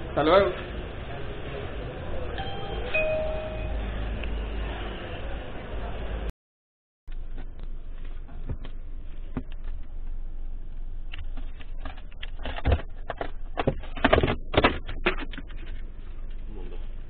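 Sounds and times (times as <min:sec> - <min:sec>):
handling noise rustling and clicks: 0:10.7 - 0:16.5.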